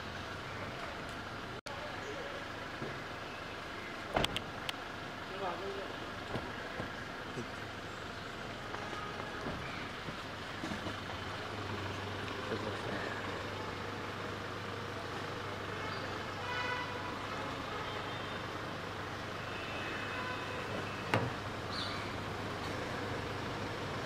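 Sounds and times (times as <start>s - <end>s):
car engine idling: 0.0s - 24.0s
street background noise: 0.0s - 24.0s.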